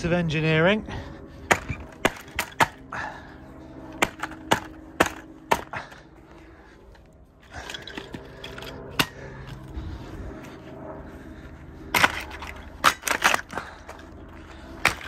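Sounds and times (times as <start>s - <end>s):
metal and plastic parts clacking on stone: 1.5s - 2.8s, 4.0s - 5.7s, 7.4s - 9.2s, 11.9s - 14.1s, 14.8s - 15.0s.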